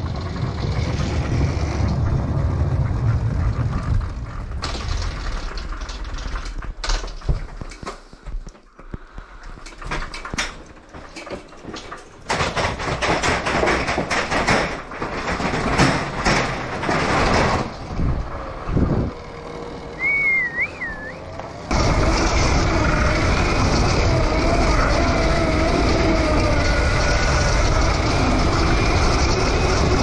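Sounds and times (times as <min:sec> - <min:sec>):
bike rattling down metal stairs: 0:00.0 - 0:18.6.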